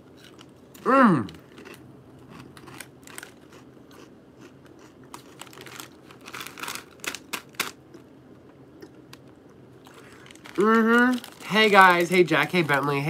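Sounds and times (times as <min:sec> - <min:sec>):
snack bag crinkling: 0:00.0 - 0:13.0.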